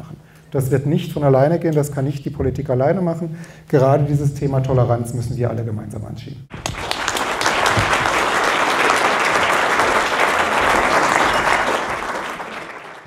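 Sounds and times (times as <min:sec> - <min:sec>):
audience applauding: 0:06.5 - 0:13.0.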